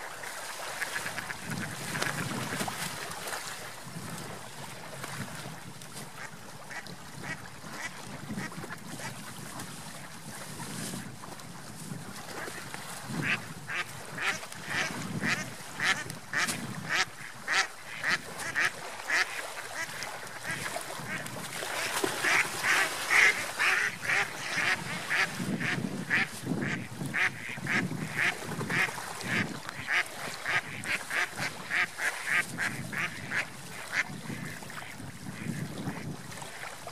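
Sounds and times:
ducks quacking: 13.2 - 36.1.

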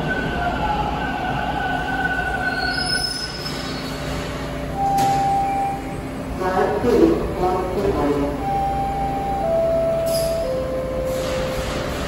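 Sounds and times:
subway train rumble: 0.0 - 12.0
wheel and brake squeals: 2.3 - 4.2.

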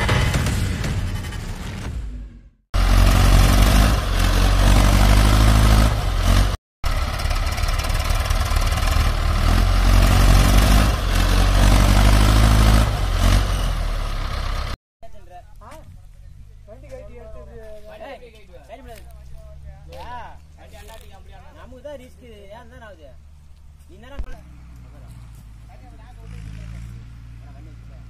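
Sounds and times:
tractor diesel engine under load: 2.8 - 14.8.

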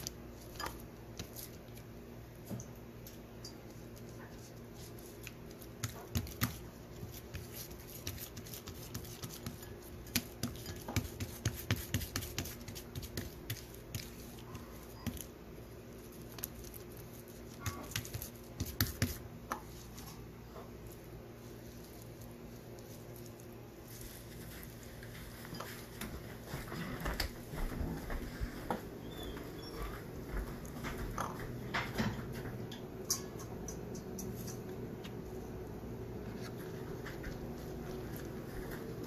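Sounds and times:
fingertips tapping dough: 0.0 - 20.1
low steady hum: 0.0 - 39.0.

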